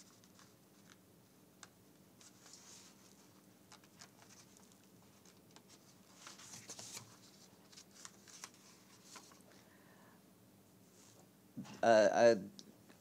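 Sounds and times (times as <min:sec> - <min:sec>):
low room hum: 0:00.0 - 0:13.0
paper sheets rustling: 0:02.2 - 0:09.4.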